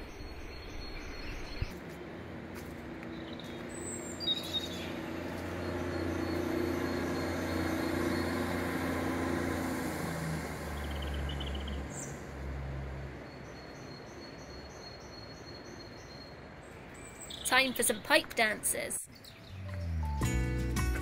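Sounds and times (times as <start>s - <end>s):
bird chirping: 0.0s - 1.8s, 3.1s - 9.0s, 10.7s - 12.3s, 13.2s - 20.1s
diesel train drone: 0.0s - 15.5s.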